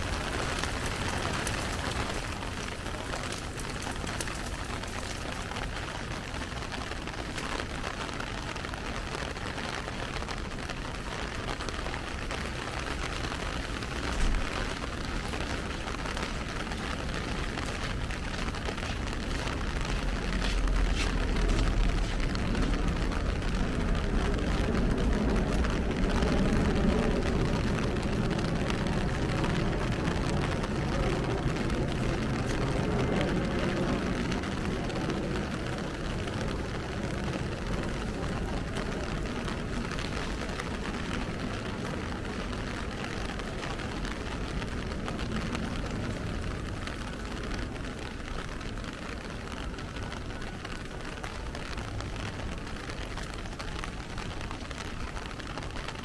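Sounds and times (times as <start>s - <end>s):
rain pattering on an umbrella: 0.0s - 56.0s
road traffic rumble: 0.0s - 56.0s.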